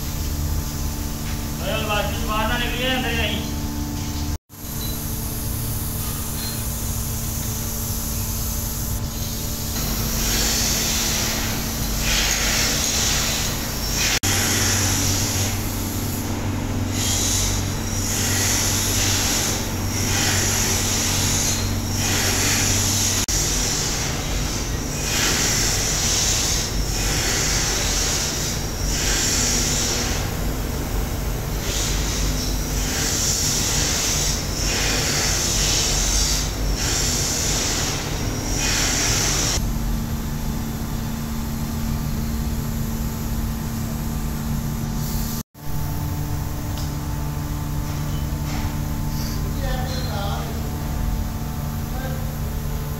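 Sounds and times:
low machine hum: 0:00.0 - 0:52.9
spray gun hissing: 0:05.0 - 0:16.3.

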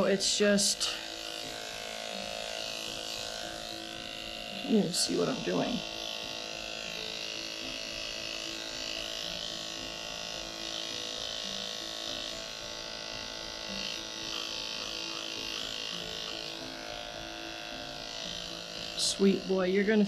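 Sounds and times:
electric clippers running: 0:00.0 - 0:20.0.

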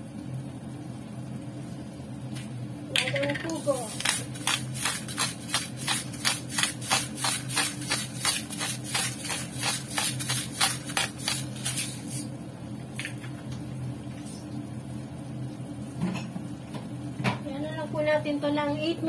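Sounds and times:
low steady hum: 0:00.0 - 0:19.0
sauce popping and crackling: 0:03.9 - 0:11.8.

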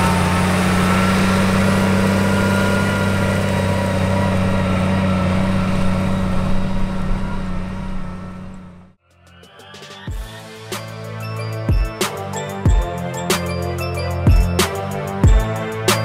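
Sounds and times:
tractor diesel engine running: 0:00.0 - 0:09.0.

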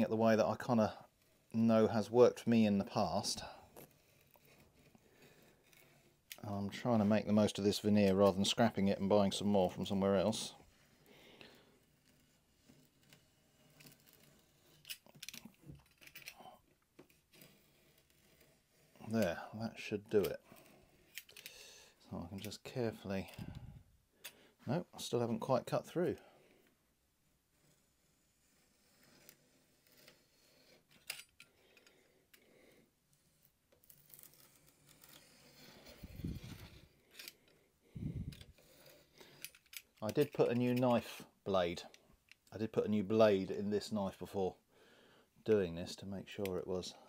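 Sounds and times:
knife blade scratching through wood: 0:11.8 - 0:15.1, 0:17.2 - 0:19.1, 0:27.6 - 0:31.0, 0:33.2 - 0:37.4
knife scoring wood veneer: 0:27.6 - 0:30.9.

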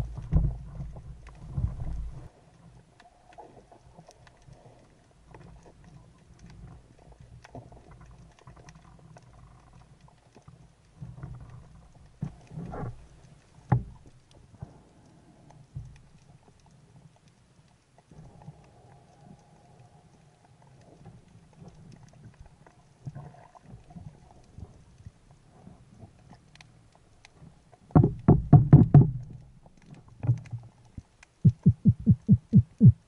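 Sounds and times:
faint underwater clicks: 0:00.0 - 0:33.0
underwater rumble: 0:00.0 - 0:33.0
underwater knocks: 0:27.9 - 0:29.4, 0:31.5 - 0:33.0.

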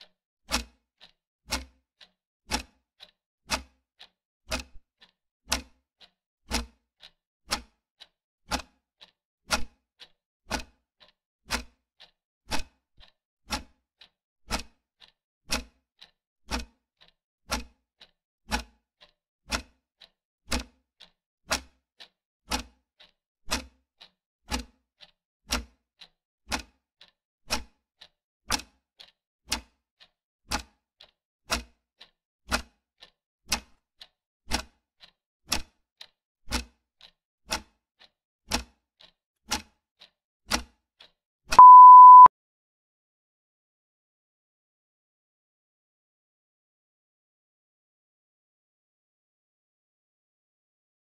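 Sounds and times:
clock ticking: 0:10.5 - 0:12.1, 0:41.6 - 0:42.3
steady single-pitched beep: 0:41.6 - 0:42.3.

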